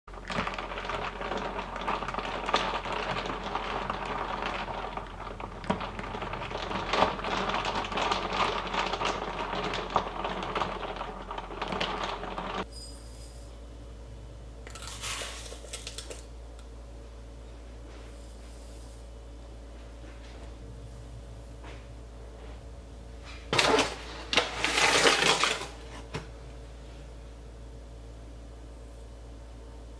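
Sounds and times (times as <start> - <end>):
ice cubes clinking in glass: 14.7 - 16.3.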